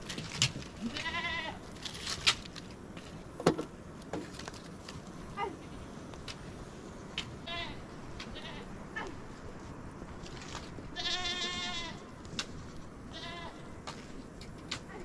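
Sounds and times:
livestock bleating: 0.8 - 1.6, 7.4 - 9.1, 11.0 - 12.0, 13.1 - 13.7.

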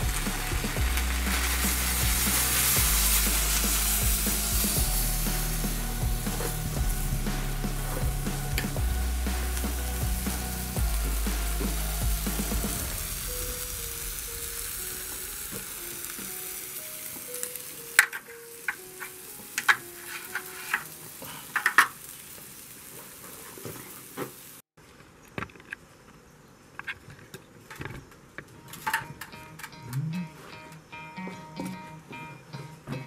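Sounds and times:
food sizzling in a pan: 0.0 - 24.7
utensil scraping in a pan: 19.0 - 22.0.

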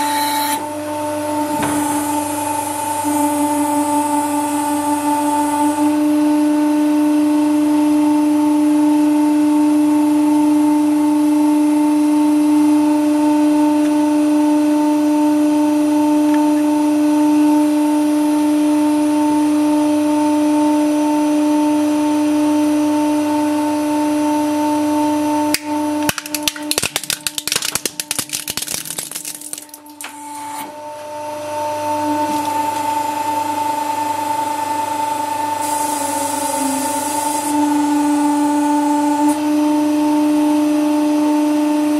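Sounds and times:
hydraulic pump humming: 0.0 - 6.2
plastic toy cracking and snapping: 25.5 - 30.1.

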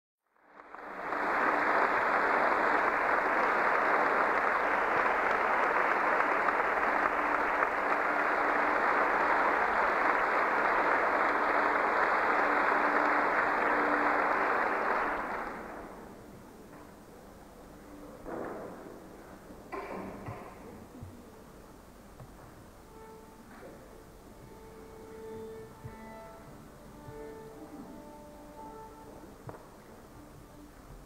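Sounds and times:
audience applauding: 0.3 - 16.2.

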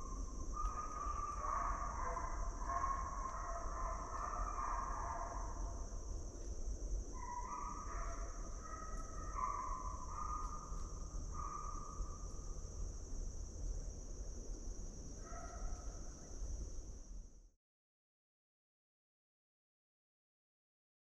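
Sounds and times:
insects droning: 0.0 - 17.5.

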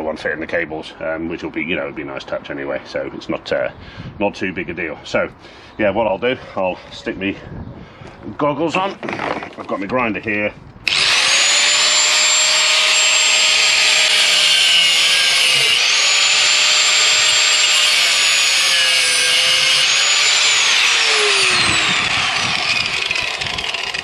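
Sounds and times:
grinder winding down: 10.8 - 24.0
angle grinder cutting metal: 10.9 - 24.0.

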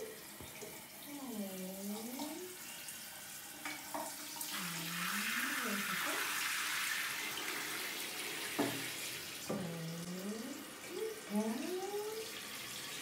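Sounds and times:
shower sprayer water hissing: 0.0 - 13.0.

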